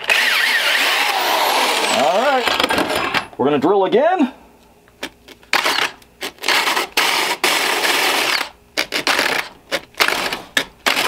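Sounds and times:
power drill grinding into foam: 0:00.0 - 0:03.1, 0:05.5 - 0:11.0.

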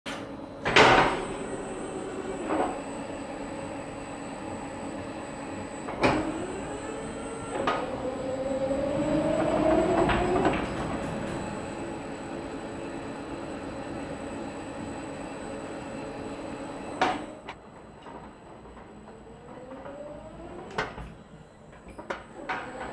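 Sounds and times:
machine hum: 0:00.4 - 0:17.9.

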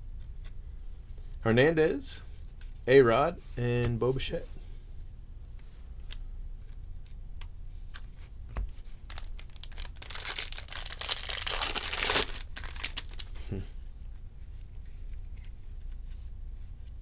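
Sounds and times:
foil wrapper tearing: 0:09.1 - 0:13.3.

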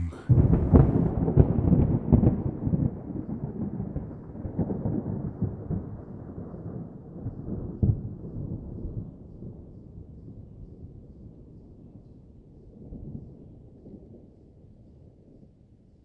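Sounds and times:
deep crackling rumble: 0:00.0 - 0:01.2.

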